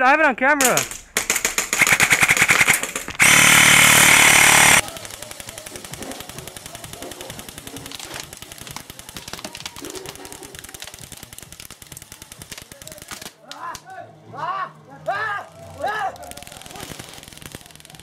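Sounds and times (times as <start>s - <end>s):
airsoft rifle firing full-auto: 1.2s - 9.9s.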